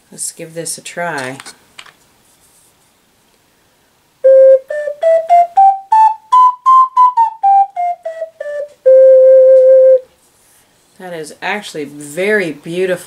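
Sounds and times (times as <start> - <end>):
ocarina playing a scale: 4.2 - 10.1.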